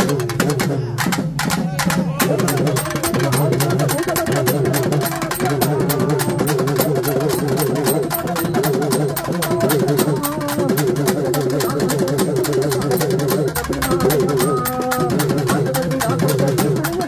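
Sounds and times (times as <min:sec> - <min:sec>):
rapid drumbeats: 0:00.0 - 0:17.0
wavering melody line: 0:02.3 - 0:17.0.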